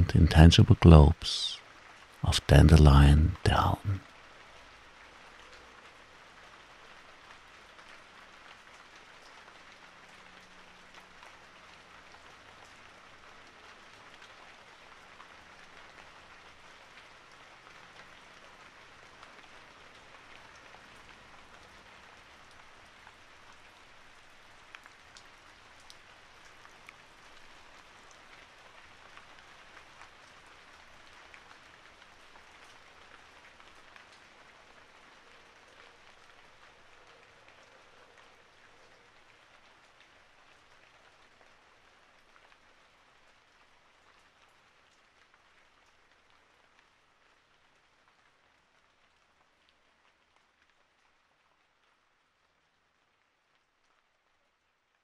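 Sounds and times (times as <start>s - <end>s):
gentle rain hiss: 0.0s - 55.0s
raindrop ticks: 19.2s - 42.7s.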